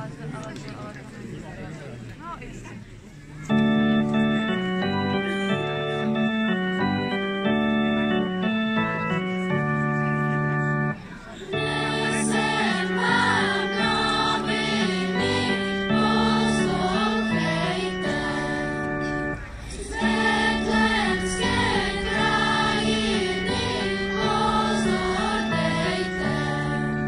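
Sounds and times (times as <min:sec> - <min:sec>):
electronic keyboard accompaniment: 0:03.4 - 0:27.0
children's choir singing: 0:10.7 - 0:27.0.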